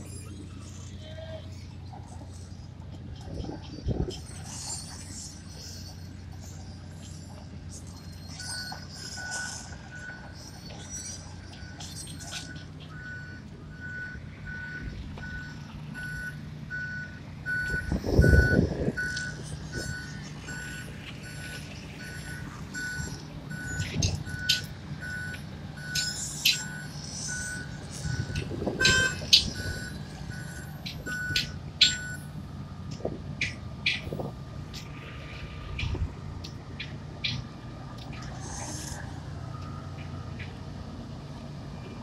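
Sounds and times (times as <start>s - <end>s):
diesel engine droning: 0.0s - 42.0s
backup alarm beeping: 12.4s - 32.2s.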